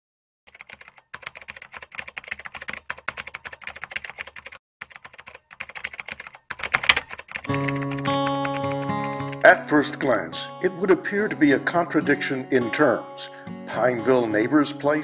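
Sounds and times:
rapid typing on keyboard: 0.5 - 9.7
acoustic guitar music: 7.5 - 15.0.

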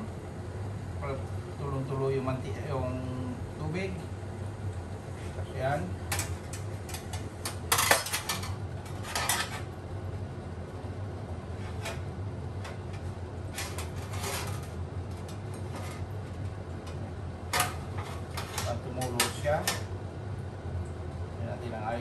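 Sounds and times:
steady low hum: 0.0 - 22.0
metal utensils clinking on tray: 6.9 - 9.7.

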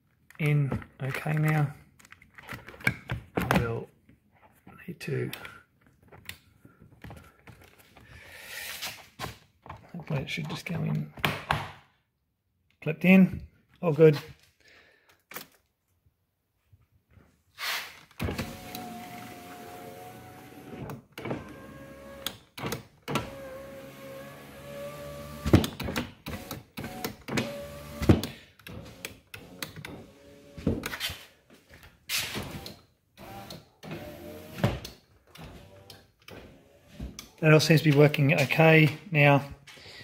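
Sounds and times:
electric window motor humming: 18.2 - 22.3, 23.2 - 25.6, 26.3 - 28.2.

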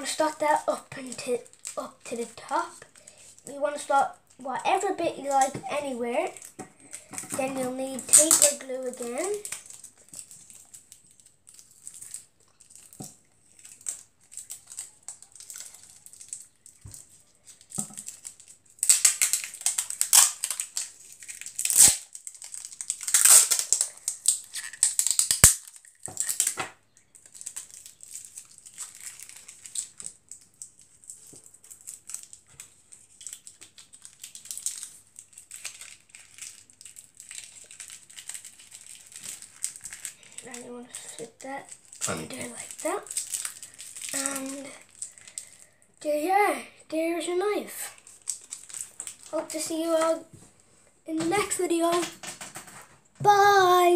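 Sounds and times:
paper crinkling and rustling: 4.8 - 45.5, 47.9 - 50.2.

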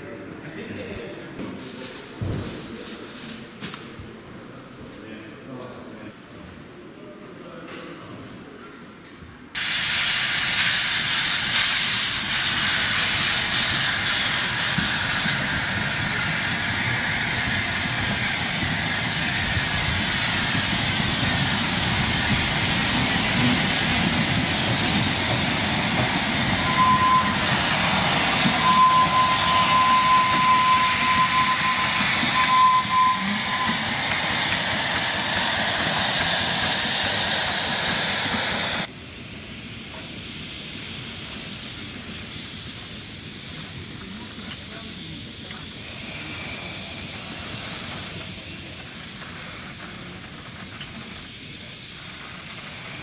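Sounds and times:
steam hissing: 9.6 - 53.0
steam whistle: 26.2 - 35.5.

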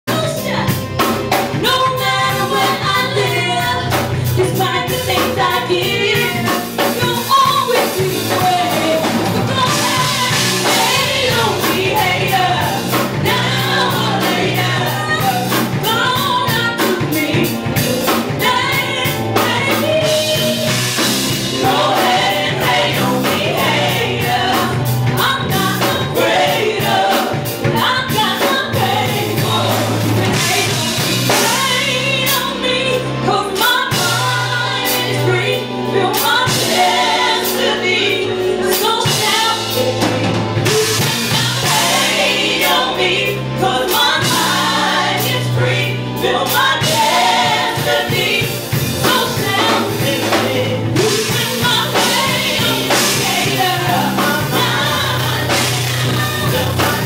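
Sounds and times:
drum kit: 0.0 - 57.0
woman singing into a microphone: 0.1 - 0.8, 1.6 - 20.7, 27.6 - 42.1, 47.9 - 57.0
guitar: 0.2 - 57.0.

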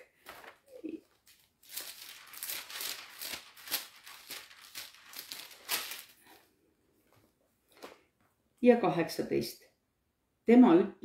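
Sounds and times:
paper pages rustling: 0.1 - 8.0.

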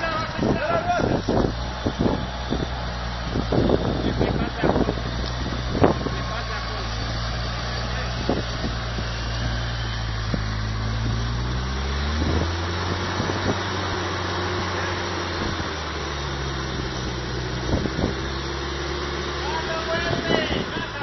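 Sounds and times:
engine running under load: 0.0 - 21.0.

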